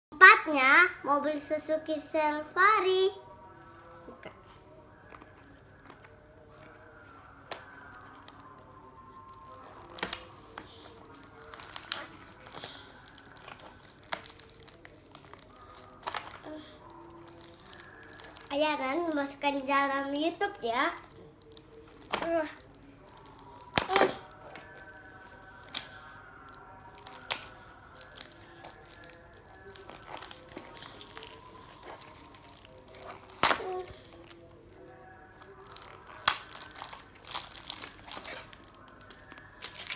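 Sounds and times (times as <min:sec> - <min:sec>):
sharp cardboard snaps: 0:33.2 - 0:34.0.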